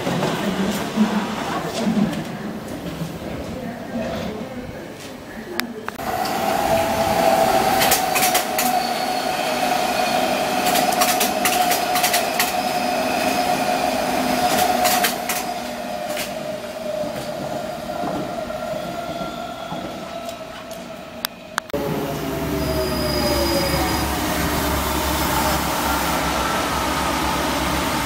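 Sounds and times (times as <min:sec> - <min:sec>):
train whine: 0:06.0 - 0:28.0
wheels clicking over rail joints: 0:10.6 - 0:12.6.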